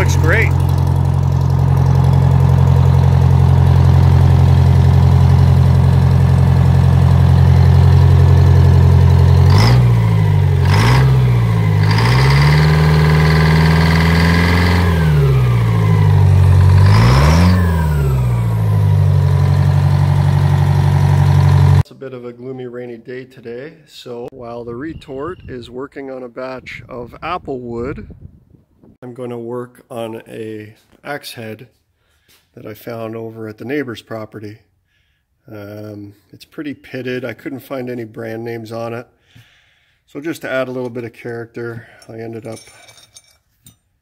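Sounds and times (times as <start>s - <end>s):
diesel engine idling and revving: 0.0s - 21.8s.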